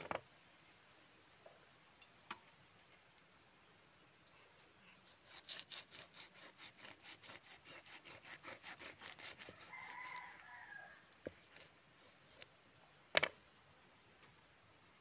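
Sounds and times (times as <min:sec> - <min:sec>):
knife scraping fish scales: 0:04.8 - 0:10.4, 0:11.3 - 0:12.5.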